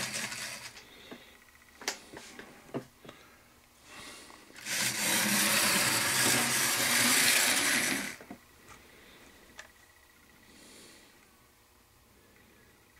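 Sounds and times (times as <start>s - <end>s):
model train motor whirring: 0.0s - 0.8s, 4.6s - 8.2s.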